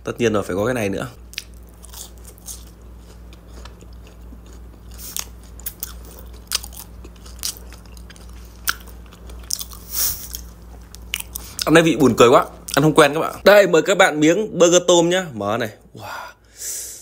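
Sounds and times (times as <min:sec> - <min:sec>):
chewing food: 0:01.3 - 0:11.8.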